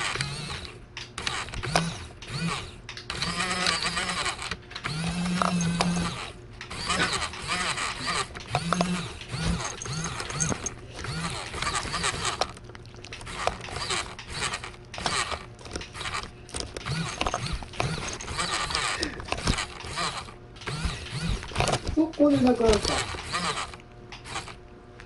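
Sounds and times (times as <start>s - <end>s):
cats licking wet food: 12.5s - 13.5s.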